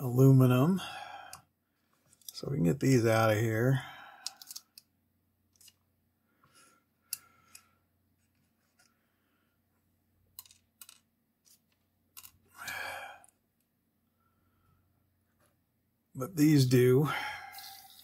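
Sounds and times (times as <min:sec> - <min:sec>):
plastic parts clicking: 0:04.2 - 0:04.9, 0:10.4 - 0:12.4.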